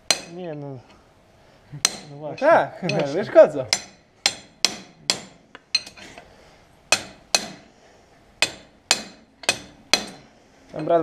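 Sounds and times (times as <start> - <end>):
hammer striking metal with ring: 0.0 - 0.4, 1.8 - 6.0, 6.9 - 7.7, 8.4 - 10.9.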